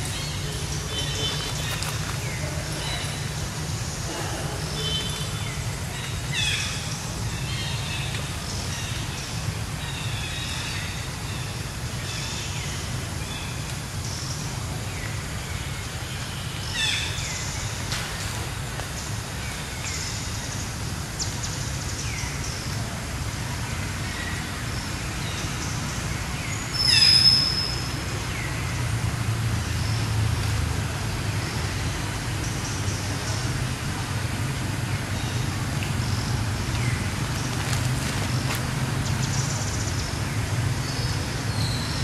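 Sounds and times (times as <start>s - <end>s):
high chirping calls: 26.7s - 28.0s.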